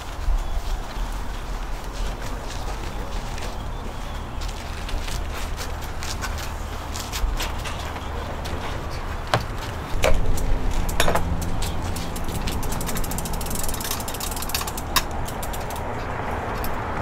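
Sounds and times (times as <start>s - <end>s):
metal rack clinking and knocking: 10.0s - 15.8s
fine rattling clicks: 10.0s - 15.9s.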